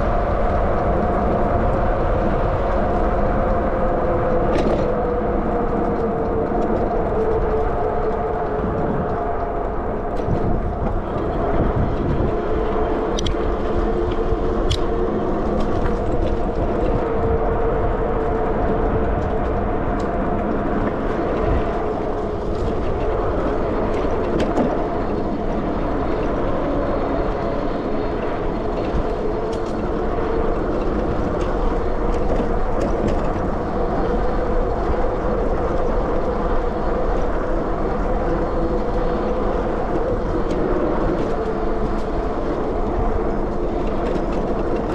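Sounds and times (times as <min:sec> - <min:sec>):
wind on microphone: 0:00.0 - 0:44.9.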